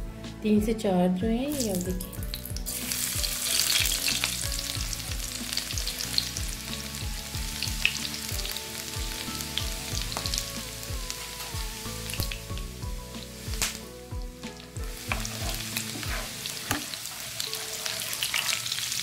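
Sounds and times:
garlic sizzling in hot oil: 0:01.5 - 0:19.0
crackling pops: 0:13.6 - 0:13.8.

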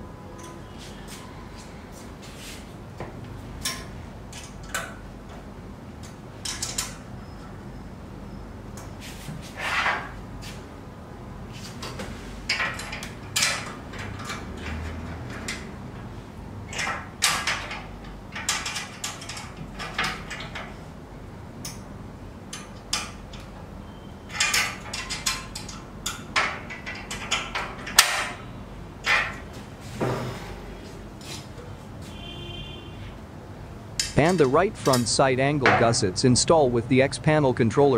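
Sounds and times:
metal parts clicking and rattling: 0:03.6 - 0:05.0, 0:06.0 - 0:07.1, 0:11.8 - 0:20.9, 0:22.5 - 0:23.6, 0:24.3 - 0:29.5.

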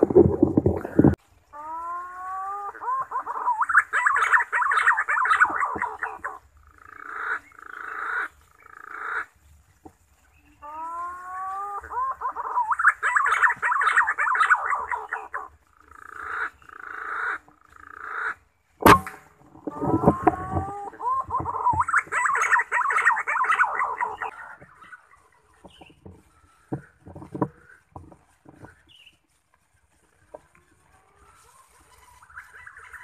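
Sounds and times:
pigeon song with whistles and warbling: 0:01.6 - 0:06.4, 0:10.5 - 0:15.5, 0:19.7 - 0:26.0.

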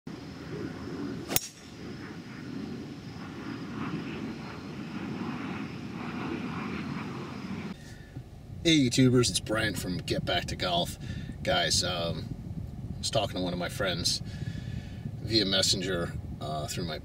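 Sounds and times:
low rumble: 0:00.1 - 0:15.3
golf club striking ball: 0:01.3 - 0:01.7.

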